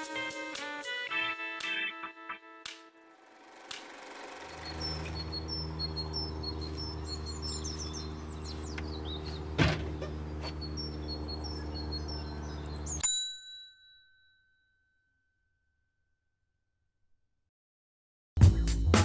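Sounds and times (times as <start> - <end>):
birds chirping: 4.2 - 13.0
bell-like ding: 13.0 - 15.6.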